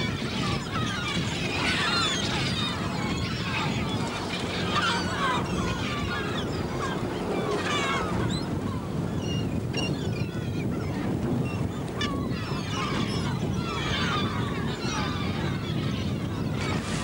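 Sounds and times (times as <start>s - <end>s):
gulls calling: 0.1s - 11.0s, 11.8s - 17.0s.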